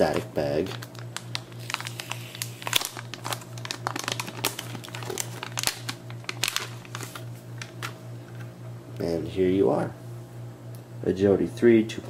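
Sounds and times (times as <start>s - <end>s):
anti-static bag crinkling: 0.1s - 8.0s.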